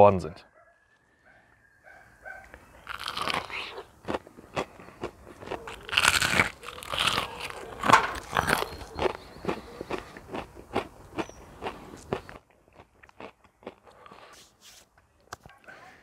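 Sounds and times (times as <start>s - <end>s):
crunching fried chicken: 2.8s - 14.4s.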